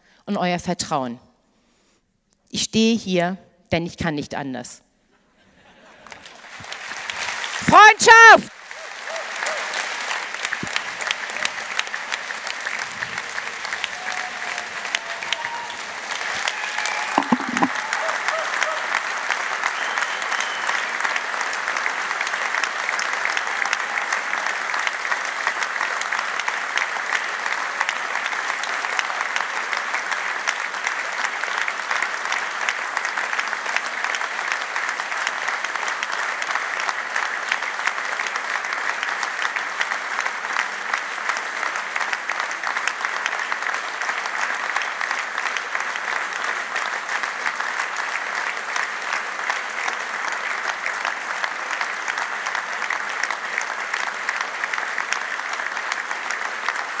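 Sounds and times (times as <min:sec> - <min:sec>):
large crowd applauding: 0:05.6 - 0:57.0.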